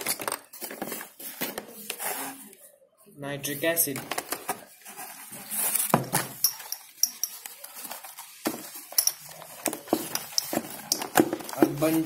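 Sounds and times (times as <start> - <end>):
plastic bottles clicking and tapping: 0.0 - 2.0, 6.0 - 12.0.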